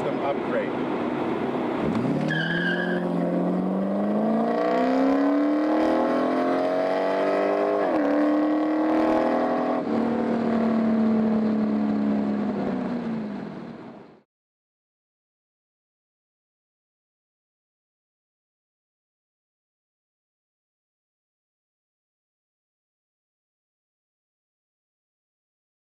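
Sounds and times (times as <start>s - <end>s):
car engine accelerating hard: 1.6s - 14.2s.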